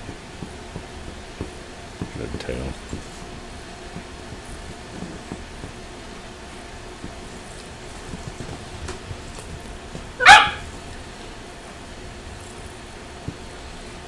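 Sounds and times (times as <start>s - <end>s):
small dog barking: 10.2s - 10.7s.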